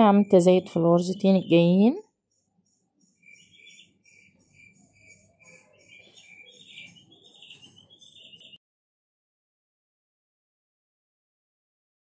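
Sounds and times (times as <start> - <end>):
high-pitched chirping: 3.1 - 8.6.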